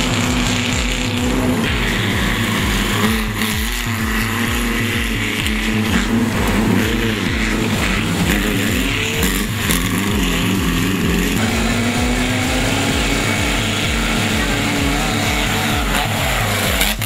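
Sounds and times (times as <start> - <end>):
music with repeating bass beat: 0.0 - 17.0
race car engines running hard: 0.0 - 17.0.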